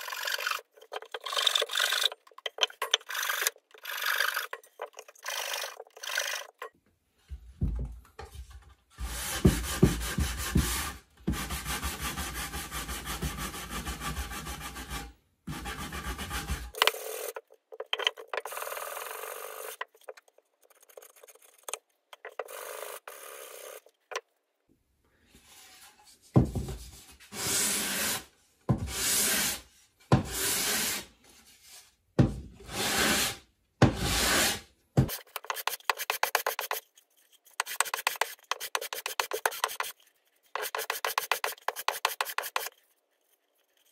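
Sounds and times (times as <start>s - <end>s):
scraping strokes on wood: 0.0s - 6.7s, 19.7s - 22.9s, 34.0s - 43.9s
wood rubbed on sandpaper: 34.2s - 43.9s.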